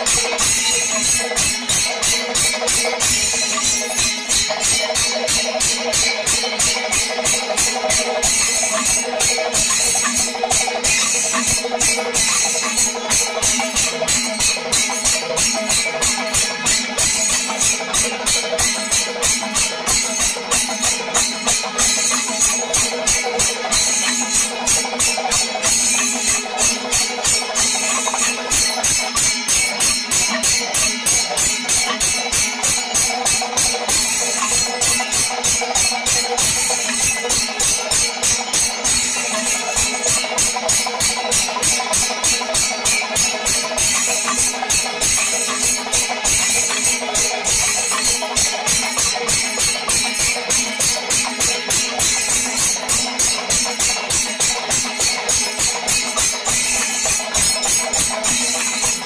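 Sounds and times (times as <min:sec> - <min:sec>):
drums beating fast rhythm: 0:00.0 - 0:59.0
hand cymbals: 0:00.0 - 0:59.0.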